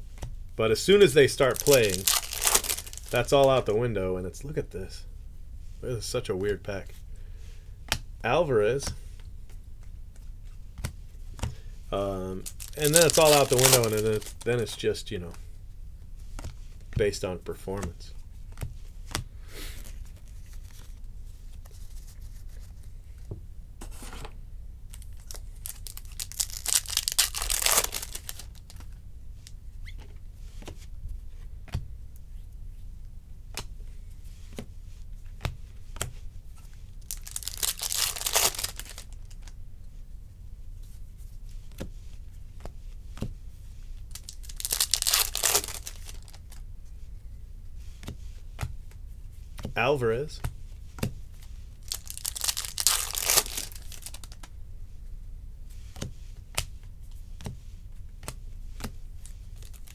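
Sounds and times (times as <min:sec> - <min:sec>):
card pack wrapper ripping: 0:01.1 - 0:03.6, 0:12.4 - 0:14.7, 0:25.0 - 0:28.8, 0:37.0 - 0:39.4, 0:44.1 - 0:46.6, 0:51.8 - 0:54.4, 0:59.2 - 0:59.9
cards clicking being handled: 0:12.6 - 0:14.8.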